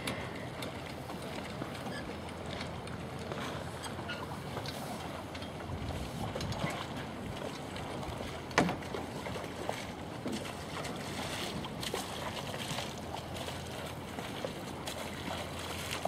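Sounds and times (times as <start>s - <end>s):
wind on the microphone: 5.7s - 7.4s.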